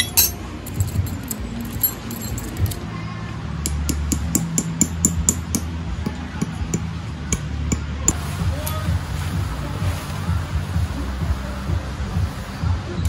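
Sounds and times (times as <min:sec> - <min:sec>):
metal tent stakes clinking: 0:00.0 - 0:03.0, 0:03.6 - 0:09.0.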